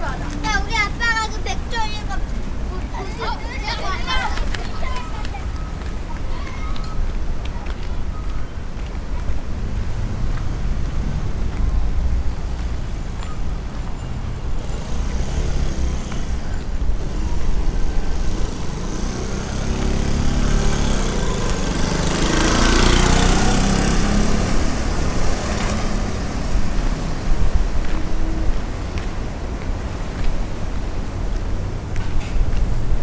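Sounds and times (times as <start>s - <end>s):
wind buffeting microphone: 22.8s - 33.0s.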